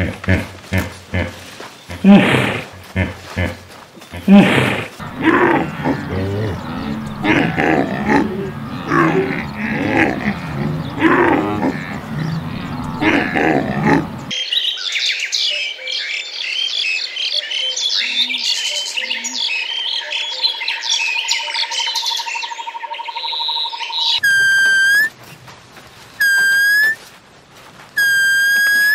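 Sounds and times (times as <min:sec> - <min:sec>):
pitched animal calls: 0:00.0 - 0:14.3, 0:24.2 - 0:25.1, 0:26.2 - 0:27.0, 0:28.0 - 0:28.9
birds chirping: 0:00.0 - 0:14.4, 0:22.4 - 0:25.5, 0:26.2 - 0:27.0, 0:28.0 - 0:28.9
steady high trill: 0:24.2 - 0:25.1.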